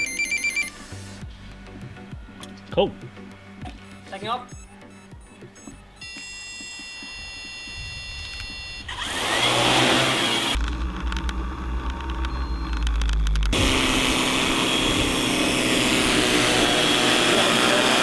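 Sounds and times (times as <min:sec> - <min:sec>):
drone propellers whining: 0:03.6 - 0:18.0
deep low rumble: 0:10.6 - 0:14.1.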